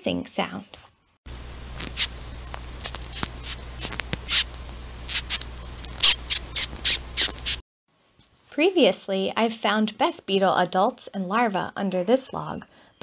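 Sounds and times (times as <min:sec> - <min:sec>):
low steady hum: 0:01.3 - 0:07.6
beetle rasping squeaks: 0:03.1 - 0:04.5, 0:05.1 - 0:07.6.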